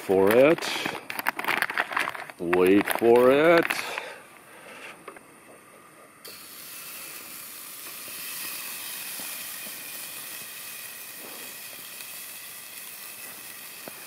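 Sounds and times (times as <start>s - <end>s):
steak sizzling on a grill: 6.2s - 14.0s.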